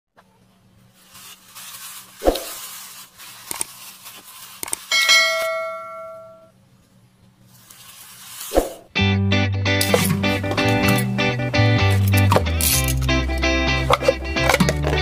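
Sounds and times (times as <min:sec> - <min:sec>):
bright bell ding: 0:04.9 - 0:06.5.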